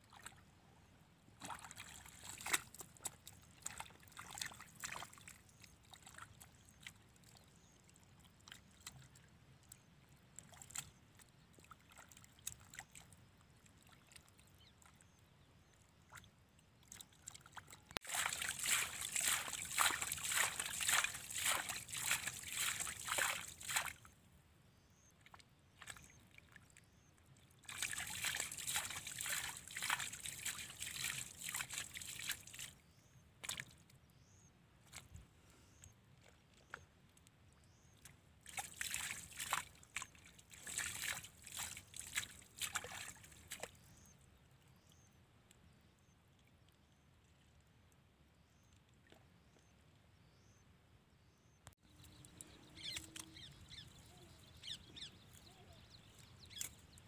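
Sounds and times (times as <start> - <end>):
hands slapping wet mud: 18.0 - 24.0.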